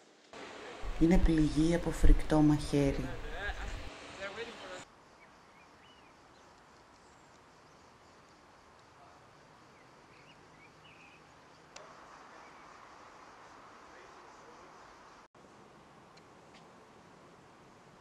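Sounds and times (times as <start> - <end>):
steady hiss: 0.0 - 10.2, 11.4 - 18.0
distant bird chirps: 0.8 - 3.9, 9.7 - 13.4.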